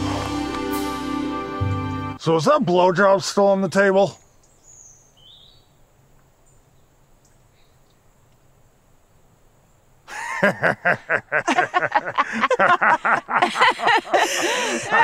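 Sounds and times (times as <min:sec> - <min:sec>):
people laughing loudly: 0:10.1 - 0:15.0.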